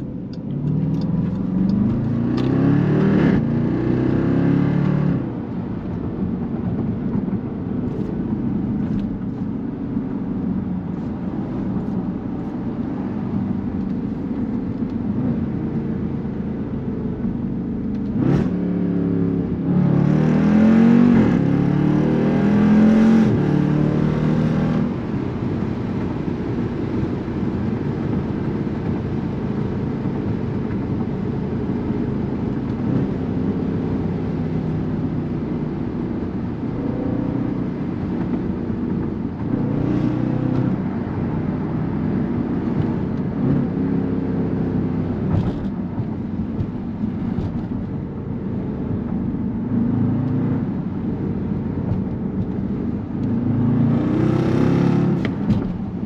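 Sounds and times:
car engine droning in cabin: 0.0 - 56.0
car accelerating hard: 17.9 - 25.4, 51.8 - 55.9.

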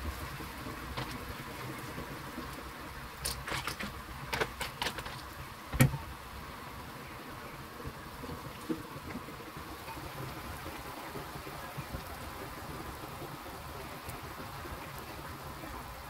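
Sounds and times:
steady low hiss: 0.0 - 16.0.

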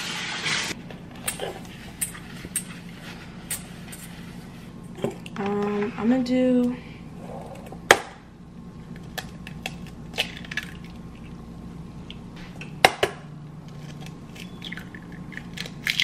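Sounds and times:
eggs cracking against metal bowl: 8.9 - 11.4, 12.0 - 16.0.

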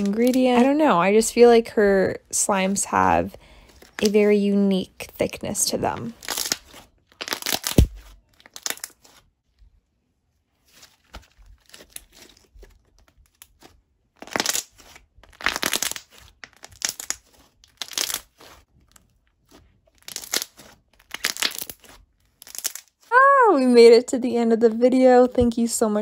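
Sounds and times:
slime squished by hand: 6.2 - 9.2, 10.8 - 23.2.

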